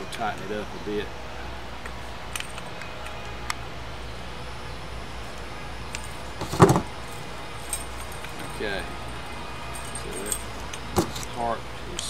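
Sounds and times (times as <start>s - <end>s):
steady low hum: 0.0s - 12.0s
metal clatter: 6.0s - 8.8s.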